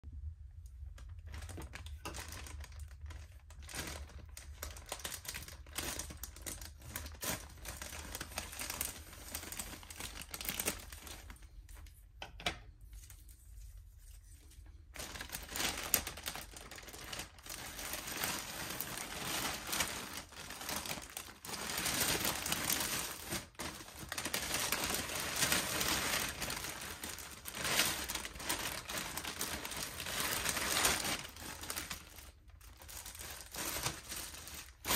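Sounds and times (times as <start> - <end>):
plastic mailer bag crinkling: 0.8 - 11.8, 14.2 - 34.9.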